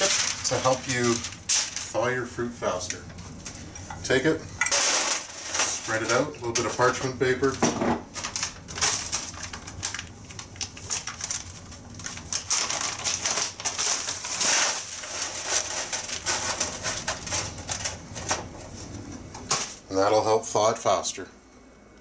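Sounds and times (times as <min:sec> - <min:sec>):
frozen strawberries clattering on tray: 0:00.0 - 0:03.0, 0:04.6 - 0:18.5
parchment paper rustling: 0:00.0 - 0:19.8.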